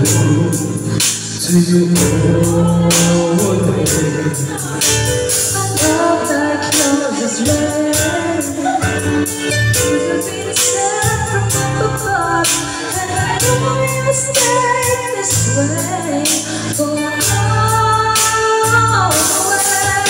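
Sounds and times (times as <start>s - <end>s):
men singing into microphones: 0.0s - 9.7s
backing track with drum beat: 0.0s - 20.0s.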